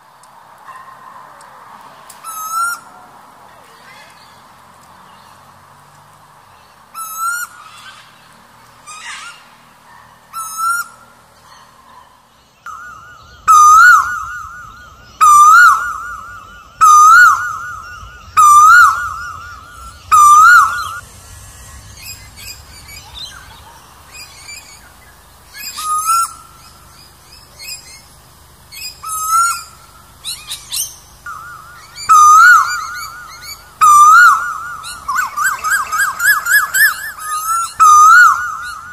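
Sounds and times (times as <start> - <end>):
high bird chirps: 12.5 - 38.9
koel calling: 12.7 - 21.0, 22.5 - 38.9.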